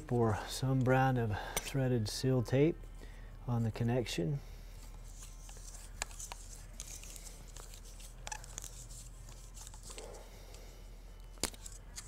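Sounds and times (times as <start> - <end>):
steady low hum: 0.0 - 12.0
tape crinkly rustling: 4.8 - 10.2.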